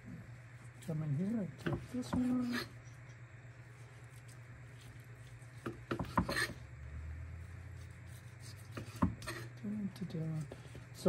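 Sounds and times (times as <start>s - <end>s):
steady low hum: 0.0s - 11.0s
knife cutting ribs on board: 5.6s - 6.6s.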